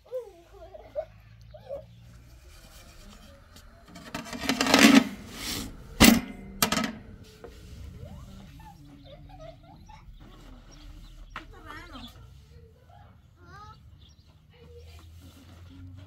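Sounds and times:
faint child's voice: 0.0 - 3.9, 7.8 - 16.0
stick scraping on metal griddle: 2.0 - 8.6.

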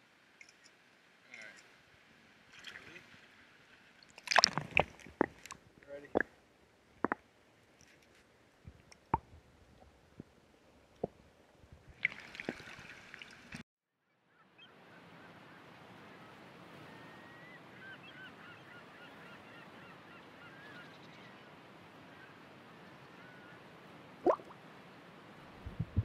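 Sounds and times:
light clicks and chirps: 0.4 - 1.7
flock of waterfowl calling: 14.4 - 21.4.

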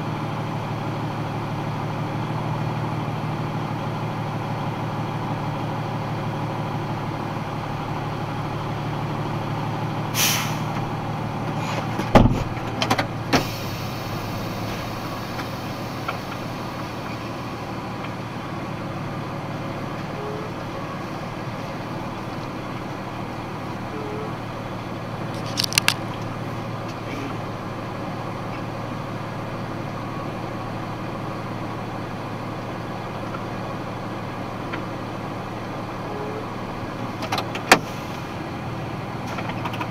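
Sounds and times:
truck engine idling: 0.0 - 39.9
short hisses: 10.1 - 10.8
truck door shutting: 11.5 - 13.9.

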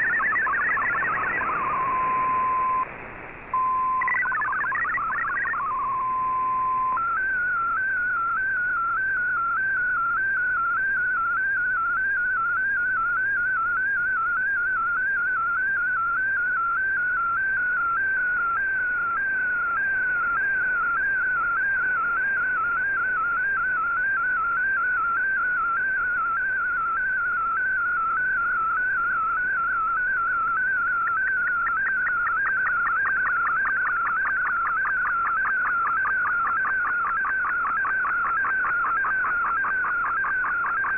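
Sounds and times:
warbling digital radio tone: 0.0 - 2.9, 3.6 - 6.0, 29.1 - 40.9
faint radio hiss: 0.0 - 40.9.

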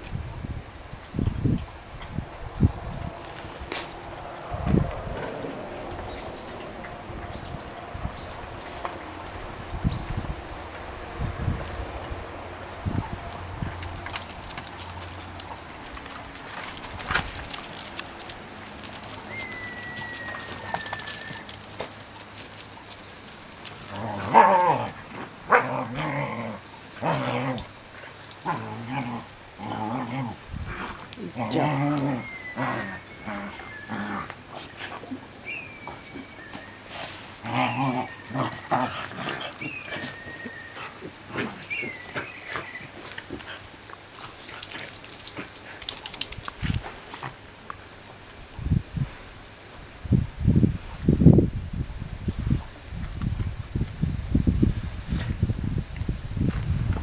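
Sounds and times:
paws scuffing on pavement: 11.5 - 25.6
dog claws clicking on concrete: 13.2 - 24.8, 43.0 - 47.8
long whistled note: 19.3 - 21.4
dog whining: 31.5 - 34.4, 35.4 - 43.2.

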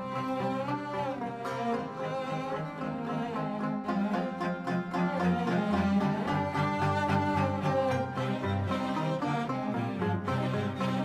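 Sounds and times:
string instruments playing melody: 0.0 - 11.0.

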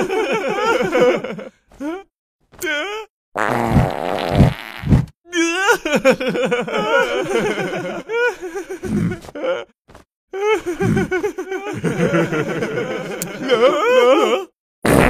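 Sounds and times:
cartoon characters laughing: 5.6 - 9.7, 10.4 - 14.5.

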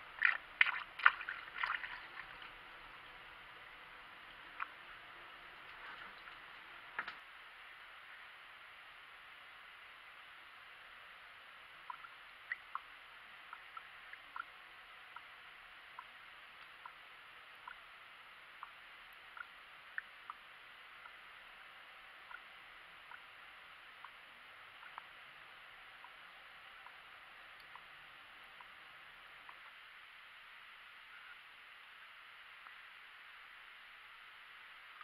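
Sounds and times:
air bubbling through coolant: 0.0 - 2.9.

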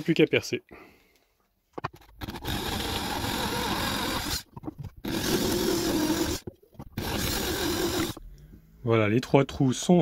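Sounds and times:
electric drill boring into wood: 2.2 - 6.4, 7.0 - 8.2.

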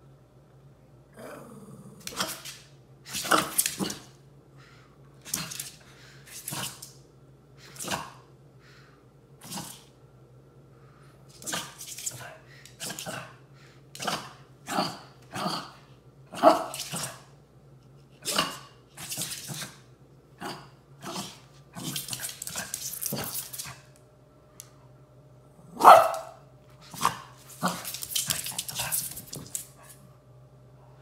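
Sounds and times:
dogs growling: 1.1 - 2.0
small dogs barking: 25.7 - 26.4.

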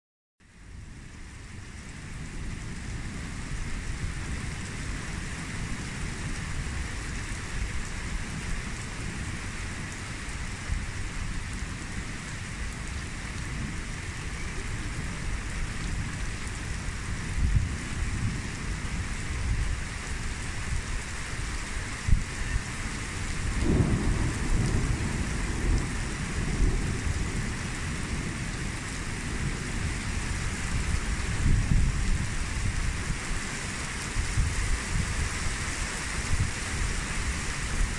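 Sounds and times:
steady rain falling: 0.4 - 37.9
low thunder rumbling: 2.1 - 33.2.

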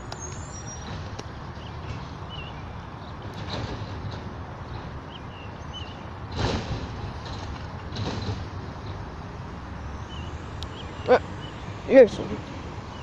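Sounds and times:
garbage truck engine rumble: 0.0 - 13.0
garbage truck mechanical bursts: 0.2 - 9.5.

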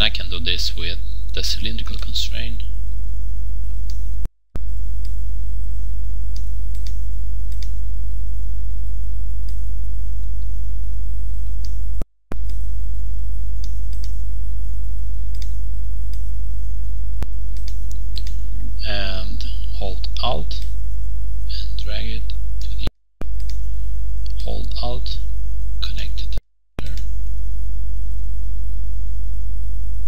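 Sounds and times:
low electrical hum: 0.0 - 30.0
mouse clicks: 13.6 - 14.2, 15.4 - 16.2.

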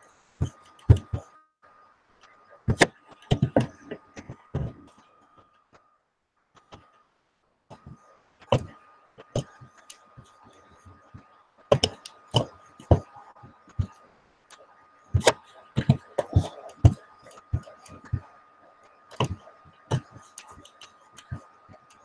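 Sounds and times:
faint steady whine: 0.0 - 22.0
computer mouse clicks and knocks: 0.4 - 1.3, 7.7 - 13.1, 13.7 - 22.0.

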